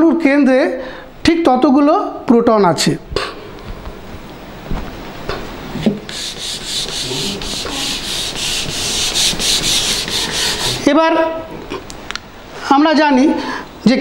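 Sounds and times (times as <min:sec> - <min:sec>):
eraser scrubbing whiteboard: 0:05.8 - 0:10.9.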